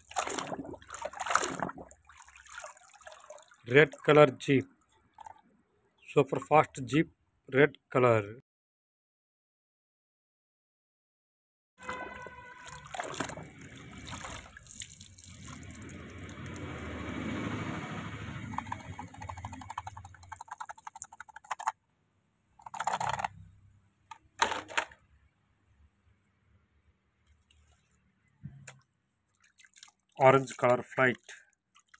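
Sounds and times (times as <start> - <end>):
water sloshing and splashing: 0.0 - 5.5, 11.8 - 21.7, 28.7 - 31.9.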